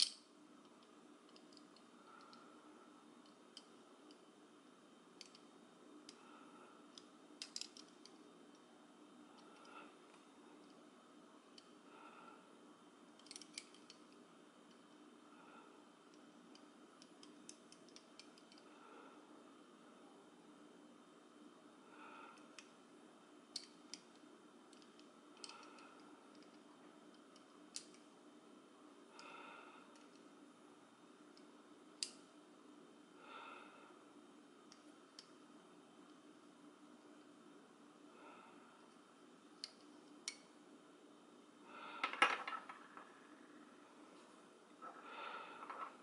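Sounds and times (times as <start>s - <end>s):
light rubbing of metal pieces: 45.6s - 46.0s.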